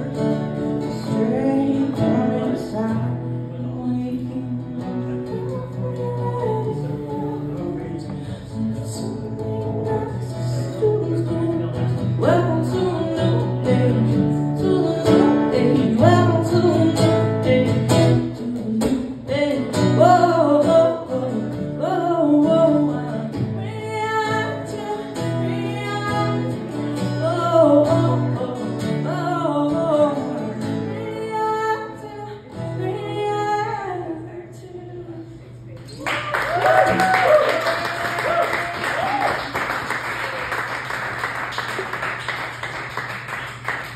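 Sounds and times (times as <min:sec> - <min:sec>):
strummed acoustic guitar: 0:00.0 - 0:34.8
woman singing: 0:00.0 - 0:35.6.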